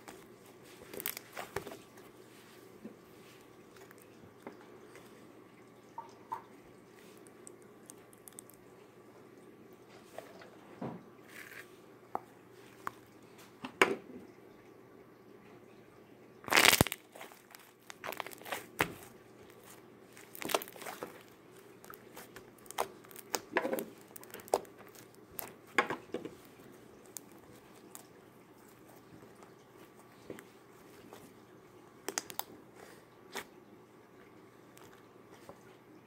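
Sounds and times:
slime squelching: 0.0 - 4.2, 6.9 - 8.6, 16.4 - 31.4, 32.0 - 33.5.

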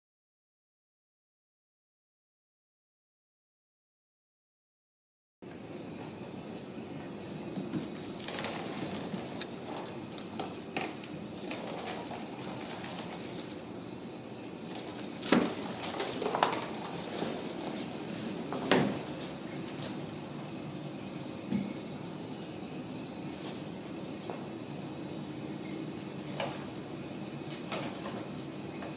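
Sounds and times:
kittens scrabbling and tapping: 7.8 - 13.7, 14.3 - 20.2.

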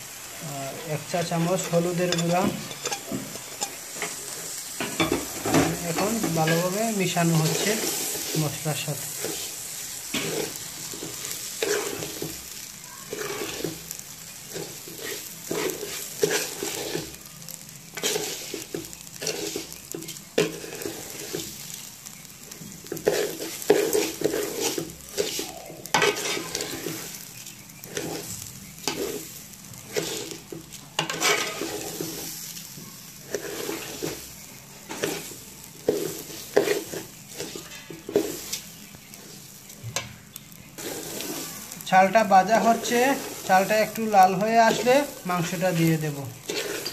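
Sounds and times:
rice frying sizzle: 0.0 - 46.9
metal spoon scraping a pot: 1.6 - 4.2, 13.1 - 13.8, 14.5 - 17.1, 18.0 - 21.4, 22.9 - 27.0, 29.9 - 30.4, 31.0 - 32.2, 40.8 - 41.4, 46.4 - 46.9.

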